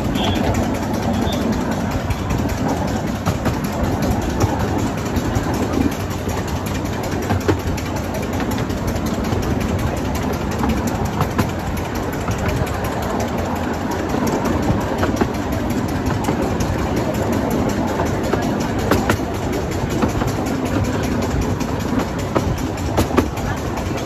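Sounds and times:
train carriages rumbling on track: 0.0 - 24.0.

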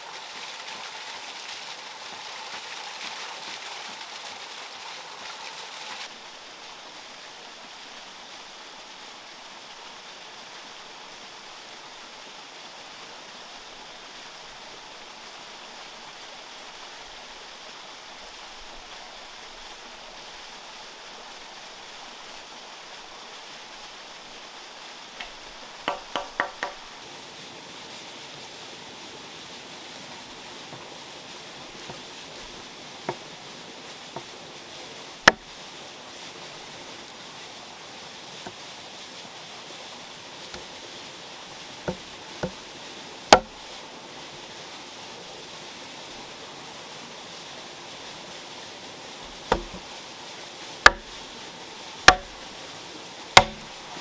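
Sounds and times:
steady background hiss: 0.0 - 54.0
hand tool knocks: 25.8 - 26.8, 49.5 - 49.8, 52.1 - 52.3, 53.4 - 53.6.

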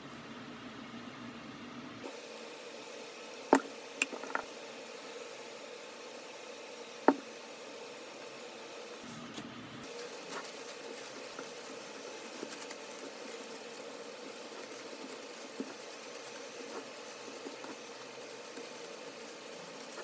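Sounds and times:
steady low hum: 0.0 - 20.0
tissue paper rustling and crinkling: 9.8 - 20.0.

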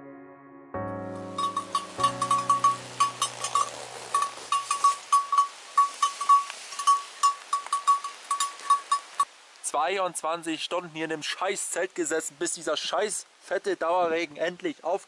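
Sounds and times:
background music: 0.0 - 4.5
sheep bells clanking: 1.4 - 9.2.

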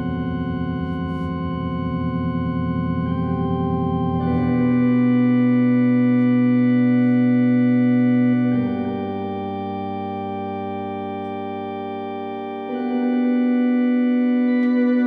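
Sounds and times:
organ playing held chords: 0.0 - 15.0.

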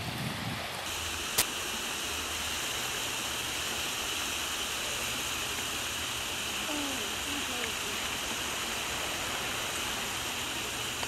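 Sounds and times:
surf and wind: 0.0 - 11.0.

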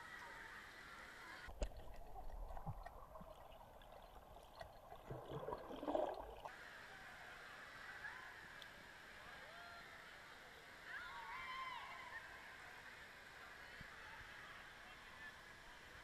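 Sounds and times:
pool water splashing: 0.0 - 6.6
underwater bubbling and gurgling: 1.5 - 6.5.

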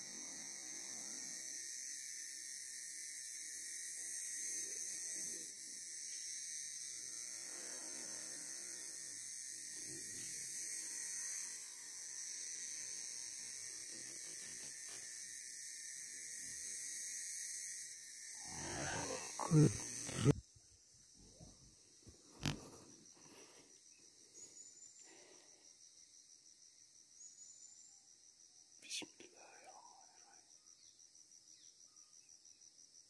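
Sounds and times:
insects droning: 0.0 - 33.0.

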